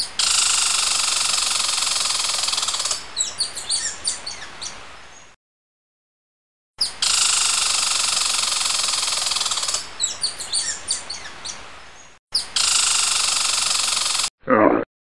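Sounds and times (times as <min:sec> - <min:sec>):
bird chirps: 0:03.2 - 0:05.4, 0:09.1 - 0:13.0.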